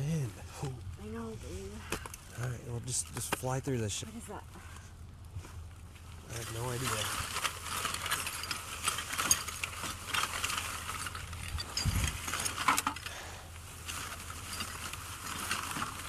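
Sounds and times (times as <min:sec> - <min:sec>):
wind rumble on microphone: 0:11.3 - 0:12.3.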